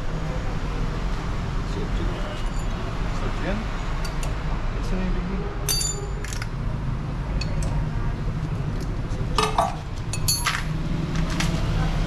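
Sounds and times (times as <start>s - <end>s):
metal tools clinking: 5.7s - 6.5s, 9.4s - 10.7s.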